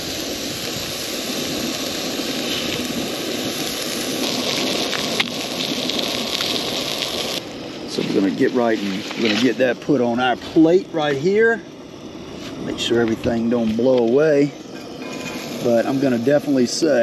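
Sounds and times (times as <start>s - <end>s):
fish frying in oil: 0.0s - 12.2s.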